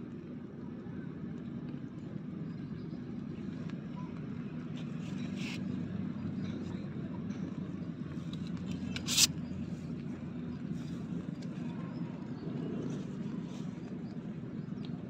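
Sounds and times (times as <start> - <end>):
low engine drone: 0.0 - 15.0
brief rustle: 4.7 - 5.7, 8.2 - 9.4.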